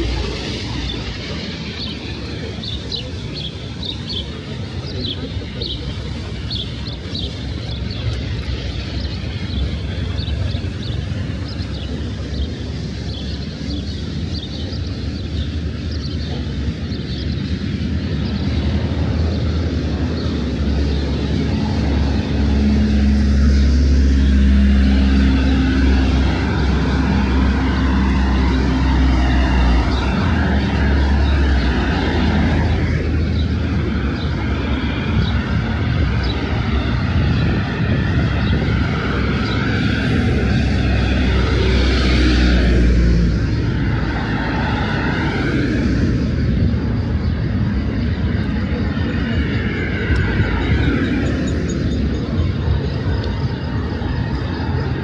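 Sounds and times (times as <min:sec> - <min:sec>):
aircraft engine drone: 0:00.0 - 0:55.0.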